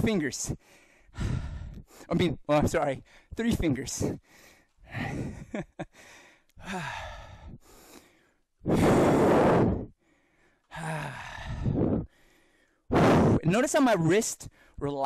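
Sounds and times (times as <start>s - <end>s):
man exhaling hard with effort: 4.2s - 10.0s, 10.7s - 12.3s.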